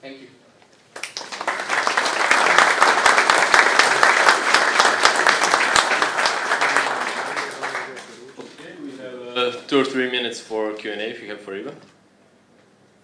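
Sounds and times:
audience applauding: 0.9s - 8.4s.

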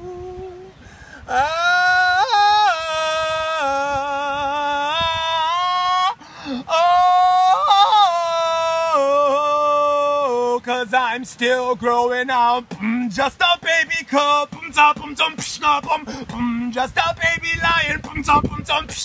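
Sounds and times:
man singing wordlessly: 0.0s - 19.0s
breath: 0.8s - 1.3s, 6.2s - 6.7s.

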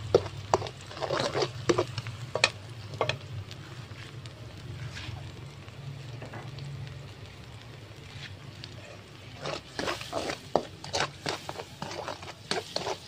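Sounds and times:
spatula scraping pan: 0.0s - 3.2s, 8.8s - 13.0s
shallots sizzling in oil: 0.0s - 13.0s.

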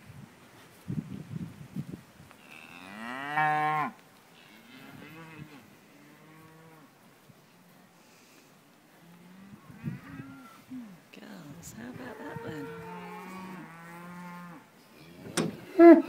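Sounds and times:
cattle mooing: 12.0s - 14.6s, 15.6s - 16.0s.

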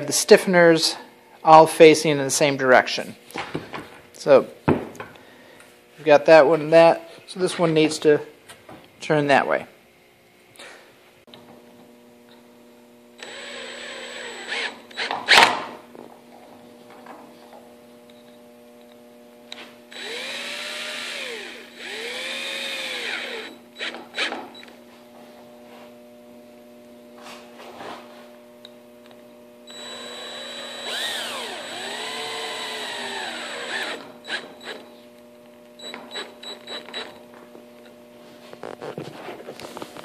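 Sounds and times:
cordless drill motor whine: 13.0s - 15.5s, 19.5s - 24.7s, 29.6s - 35.0s, 35.8s - 37.2s
drill clicks and knocks: 35.8s - 37.2s.

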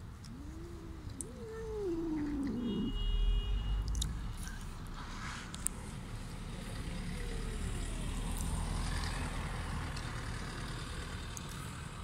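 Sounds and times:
vehicle passing low rumble: 4.2s - 12.0s.

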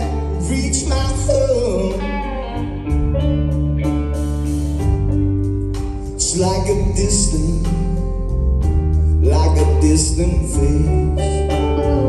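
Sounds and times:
man singing: 0.0s - 2.9s, 6.1s - 8.2s, 9.2s - 12.0s
drums: 0.0s - 12.0s
electric guitars: 0.0s - 12.0s.

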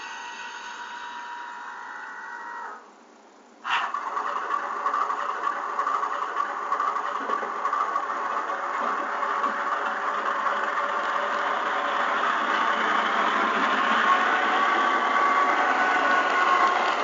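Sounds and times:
model locomotive engine idling: 3.6s - 17.0s.

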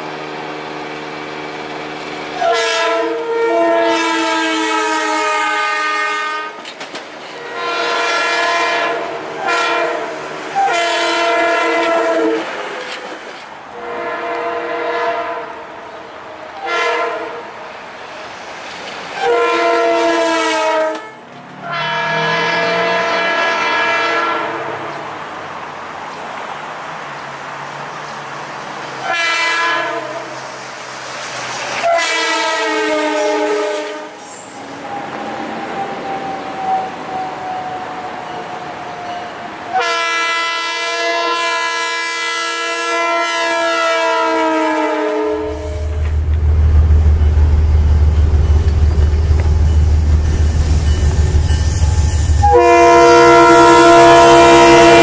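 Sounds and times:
train rumbling on rails: 0.0s - 55.0s
train air horn blasts: 2.4s - 6.6s, 7.3s - 12.9s, 13.7s - 15.9s, 16.6s - 17.6s, 19.2s - 24.9s, 29.0s - 30.3s, 31.8s - 34.3s, 39.7s - 46.2s, 46.8s - 55.0s.

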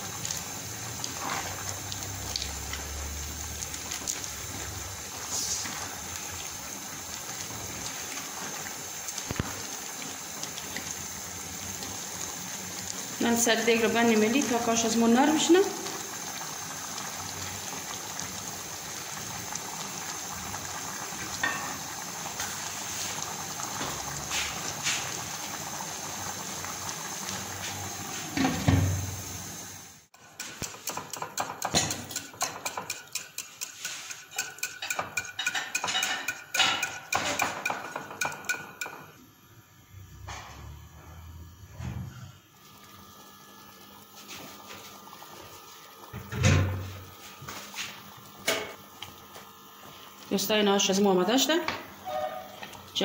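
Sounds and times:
spatula stirring soup in pot: 30.2s - 39.0s
whisk beating in glass dish: 30.4s - 39.0s.

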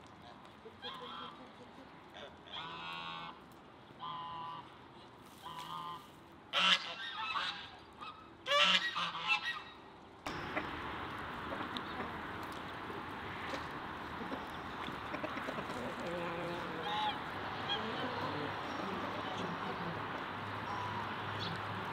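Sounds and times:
geese honking: 5.4s - 21.9s.

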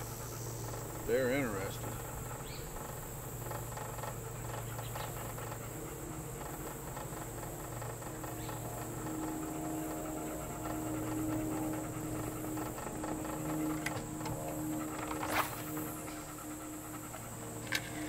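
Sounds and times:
electric motor humming: 0.0s - 18.0s
insects buzzing: 0.0s - 18.0s
motor whine: 0.0s - 18.0s.

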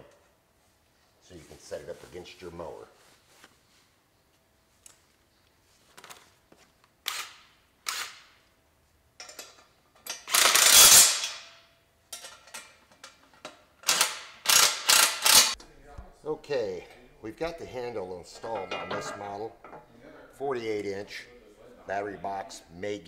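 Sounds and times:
ratchet wrench clicking: 10.0s - 11.4s, 13.8s - 15.6s
metal parts clattering and scraping: 18.3s - 19.9s.

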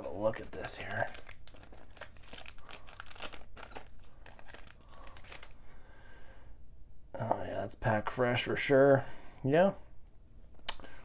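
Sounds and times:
plastic sleeve crinkling: 0.0s - 5.6s.

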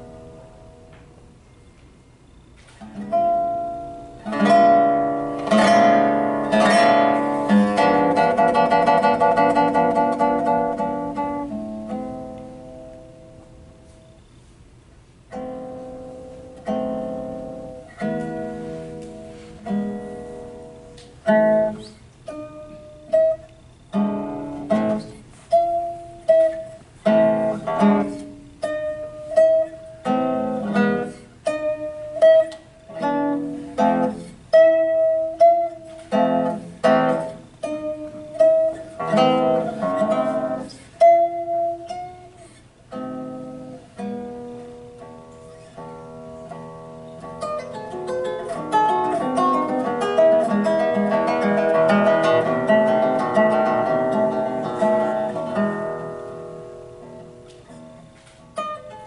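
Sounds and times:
fingerstyle guitar: 0.0s - 59.0s.

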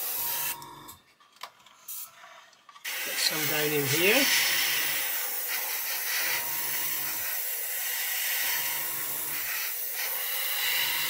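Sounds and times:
airbrush air hiss: 2.9s - 11.0s.

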